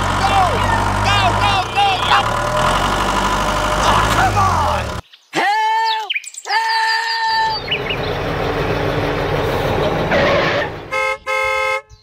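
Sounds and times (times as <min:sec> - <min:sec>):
engine rumbling: 0:00.0 - 0:05.0, 0:07.3 - 0:11.9
vehicle horn honking: 0:10.8 - 0:12.0.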